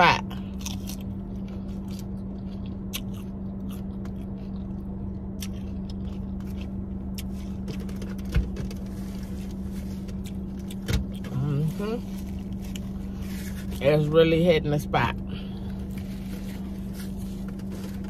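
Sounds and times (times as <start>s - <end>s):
steady low hum: 0.0s - 18.0s
chewing crunchy fried chicken: 0.2s - 13.8s.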